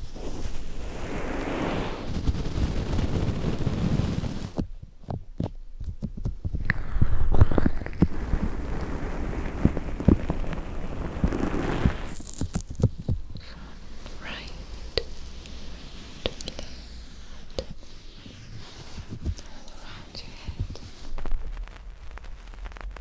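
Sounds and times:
hands rubbing microphone fur: 0.0s - 4.6s, 6.2s - 23.0s
soft taps and pops: 4.6s - 15.6s, 16.2s - 16.9s, 17.5s - 17.9s, 18.8s - 23.0s.

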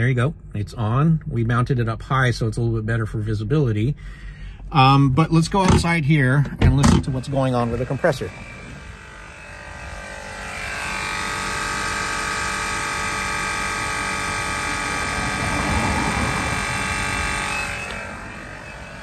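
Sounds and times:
air compressor whining and rattling: 4.6s - 19.0s.

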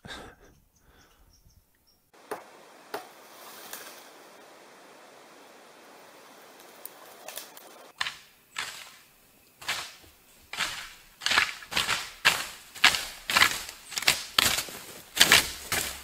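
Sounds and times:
faint steady hiss: 0.0s - 16.0s
footsteps through undergrowth: 6.6s - 16.0s.

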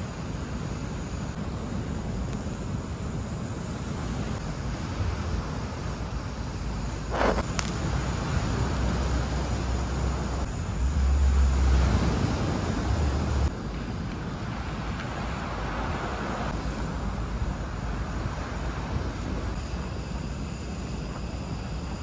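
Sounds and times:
butane torch hissing: 0.0s - 11.0s, 16.2s - 22.0s
wind rumbling on microphone: 0.0s - 22.0s.

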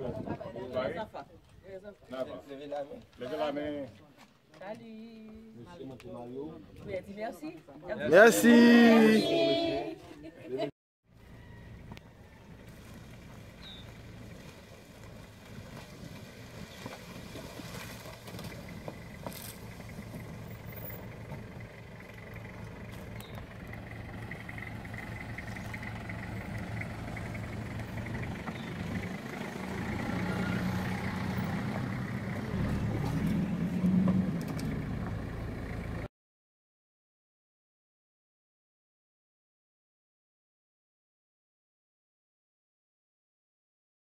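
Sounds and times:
van engine running: 11.1s - 36.1s.

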